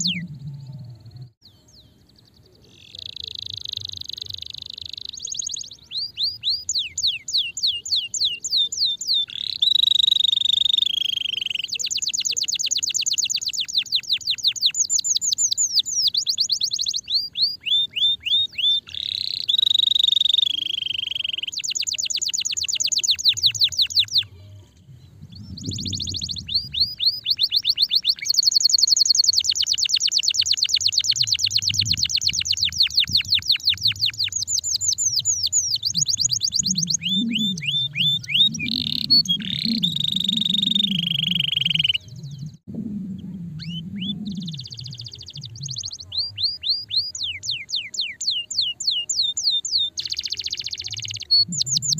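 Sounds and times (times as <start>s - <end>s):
canary singing trills: 0.0s - 51.9s.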